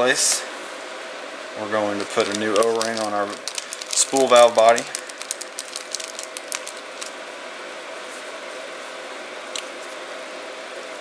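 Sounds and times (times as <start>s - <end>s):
steady machine hum: 0.0s - 11.0s
plastic bag crinkling and clicking: 2.0s - 7.2s.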